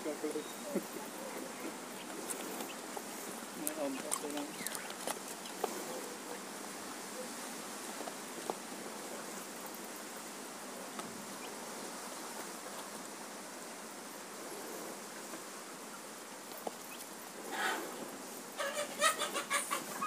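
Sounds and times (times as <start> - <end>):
outdoor background hiss: 0.0 - 20.0.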